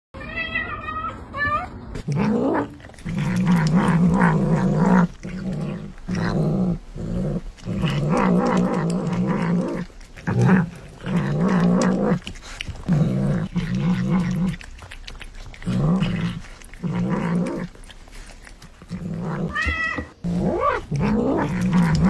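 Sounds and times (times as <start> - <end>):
kitten growling: 0.3 - 22.0
kitten meowing: 19.5 - 20.2.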